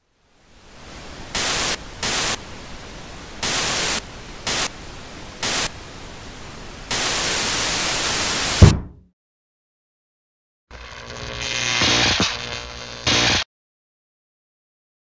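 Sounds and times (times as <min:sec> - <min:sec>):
television static hissing: 0:00.0 - 0:08.6, 0:10.8 - 0:13.4
fist banging on television: 0:08.6 - 0:09.1.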